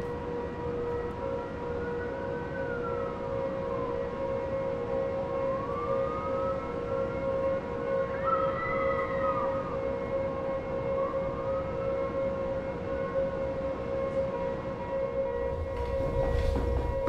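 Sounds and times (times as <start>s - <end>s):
siren-like wailing tone: 0.0s - 17.0s
steady droning tone: 15.2s - 17.0s.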